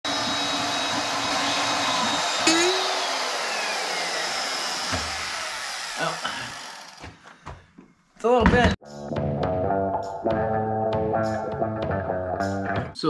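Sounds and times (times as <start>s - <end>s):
band saw cutting steel: 0.1s - 7.0s
sharp metal clank: 2.5s - 3.1s.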